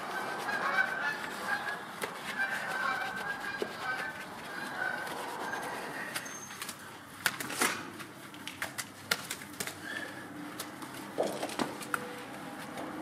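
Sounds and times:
brush scrubbing wet wheel: 0:00.0 - 0:07.2
wet clicks and squelches: 0:06.1 - 0:12.1.

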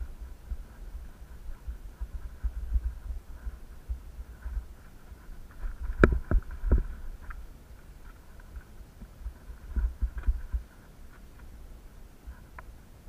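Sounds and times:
camera handling rumble: 0:04.3 - 0:11.6.

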